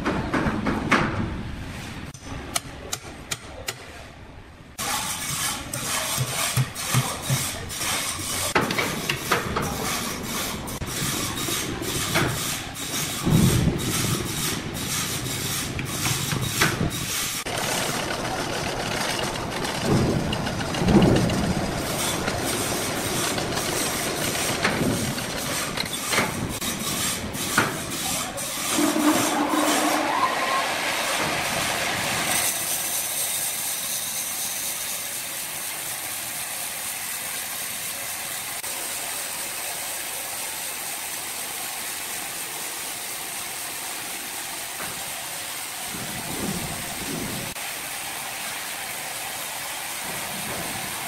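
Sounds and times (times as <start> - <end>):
sawmill machinery clanking: 4.8 - 47.8, 48.4 - 51.0.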